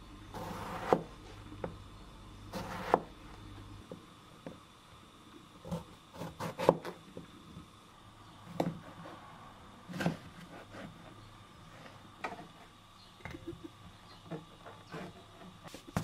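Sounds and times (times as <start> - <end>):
knife chopping on plastic board: 0.4 - 1.8, 2.5 - 3.1, 5.7 - 7.0.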